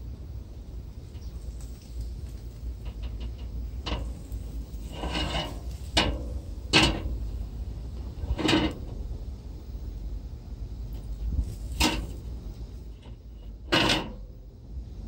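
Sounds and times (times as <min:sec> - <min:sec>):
low steady rumble: 0:00.0 - 0:15.0
metal scrape: 0:02.8 - 0:07.4, 0:08.1 - 0:09.0, 0:11.4 - 0:12.2, 0:13.0 - 0:14.2.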